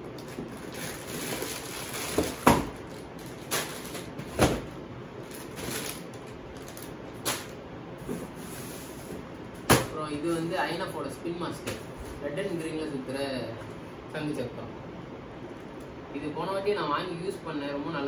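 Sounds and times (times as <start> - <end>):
cardboard rustling and scraping: 0.3 - 9.2.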